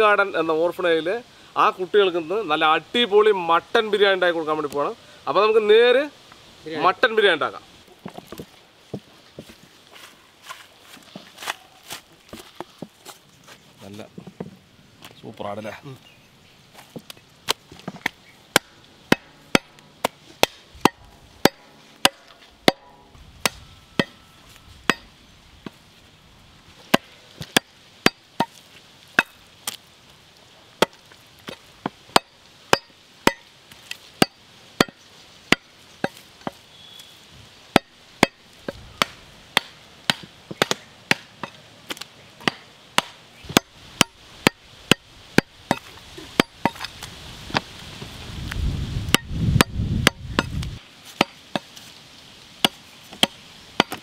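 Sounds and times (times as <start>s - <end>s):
machete chopping meat and bones: 18.5s - 24.1s, 39.0s - 46.9s, 52.6s - 54.0s.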